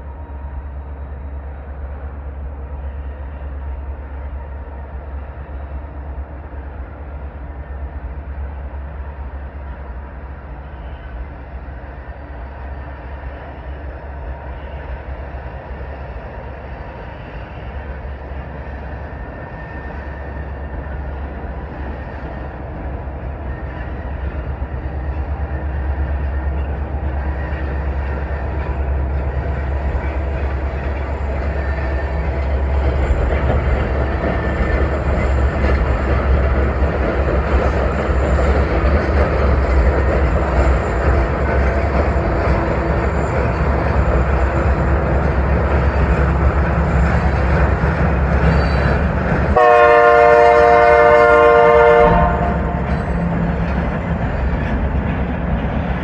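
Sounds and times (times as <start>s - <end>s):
freight train diesel locomotives rumbling: 0.0s - 56.0s.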